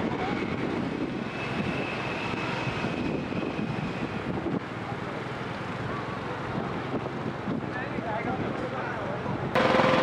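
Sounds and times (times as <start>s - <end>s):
street traffic rumble: 0.0s - 10.0s
motorcycles: 4.6s - 10.0s.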